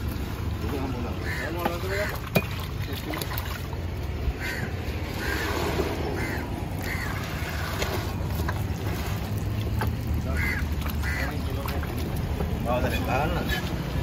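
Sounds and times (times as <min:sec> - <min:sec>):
crows cawing: 0:01.2 - 0:02.2, 0:04.3 - 0:07.6, 0:10.2 - 0:11.6.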